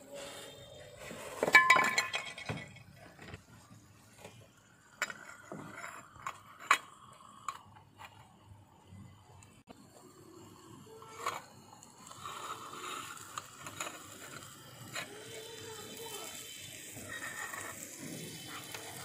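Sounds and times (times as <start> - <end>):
dishes and utensils clinking: 1.3 - 3.4.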